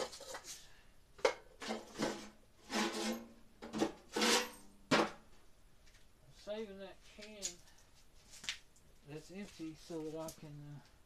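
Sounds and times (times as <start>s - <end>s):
household items scraping and knocking: 0.0s - 5.2s.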